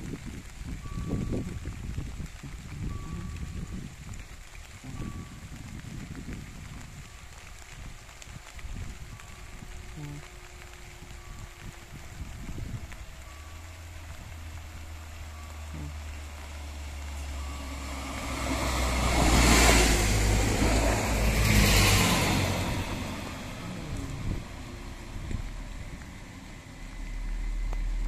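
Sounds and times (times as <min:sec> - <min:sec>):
diesel train passing: 0:00.0 - 0:28.0.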